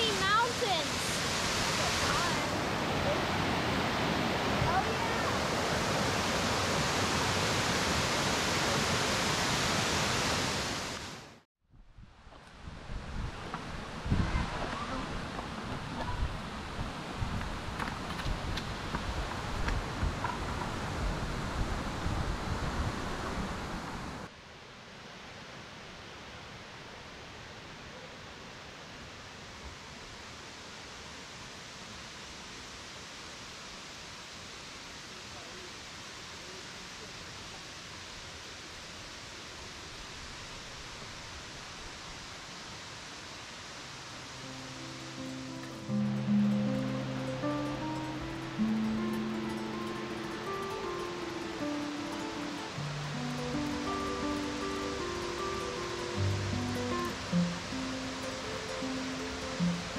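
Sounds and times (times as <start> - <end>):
waterfall roaring: 0.0 - 11.4, 33.2 - 59.9
wind buffeting microphone: 11.9 - 24.0.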